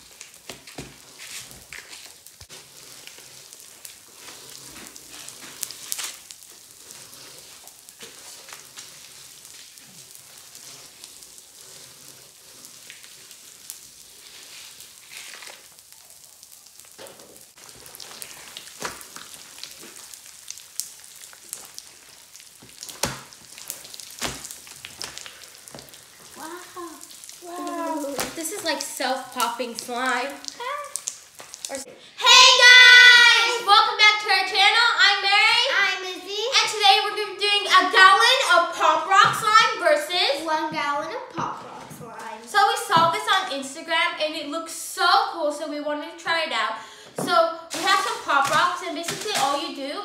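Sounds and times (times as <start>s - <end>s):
slime squished by hand: 0.0s - 31.8s
popping candy crackling: 0.0s - 45.0s, 46.8s - 50.0s.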